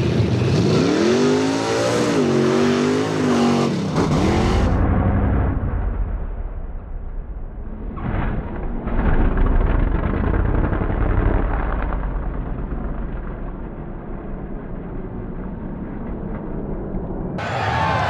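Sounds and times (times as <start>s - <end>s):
truck engine revving: 0.2s - 6.0s, 8.2s - 13.0s.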